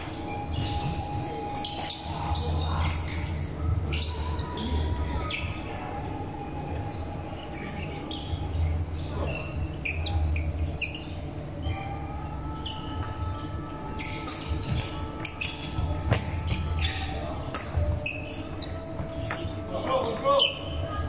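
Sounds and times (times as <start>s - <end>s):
shoes squeaking on court floor: 0.0s - 5.5s, 9.1s - 11.2s, 12.6s - 21.0s
faint echoing voices: 0.0s - 21.0s.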